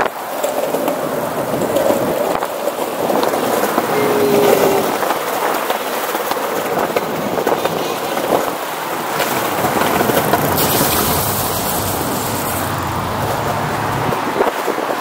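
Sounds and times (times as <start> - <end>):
skateboard wheels rumbling on boards: 0.0 - 15.0.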